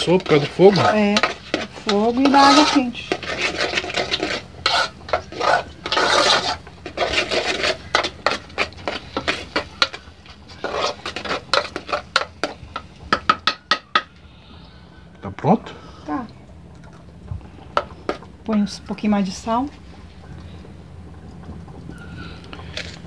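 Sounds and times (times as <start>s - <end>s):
metal spoon scraping pot: 0.0s - 14.1s.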